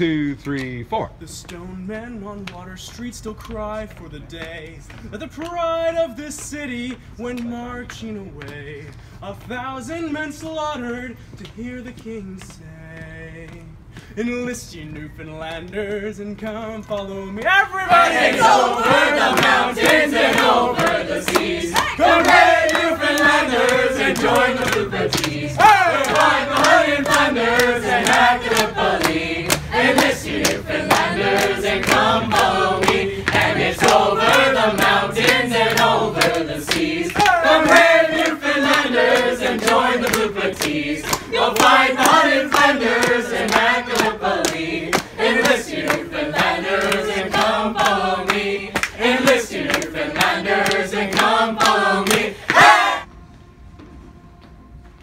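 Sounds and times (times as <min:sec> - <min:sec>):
hands clapping on the beat: 0:00.3 - 0:53.0
group of men and women singing: 0:15.2 - 0:53.1.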